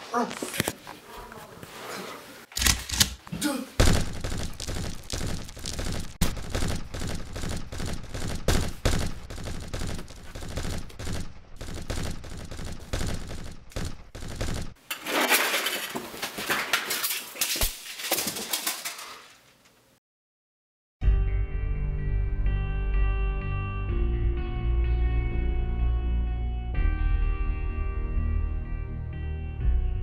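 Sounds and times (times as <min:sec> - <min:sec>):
rapid automatic gunfire: 0:03.8 - 0:14.8.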